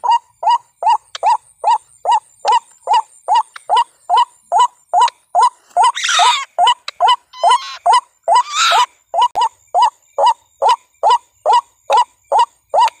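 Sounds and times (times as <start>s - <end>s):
bird harsh screeching call: 5.8s - 9.0s.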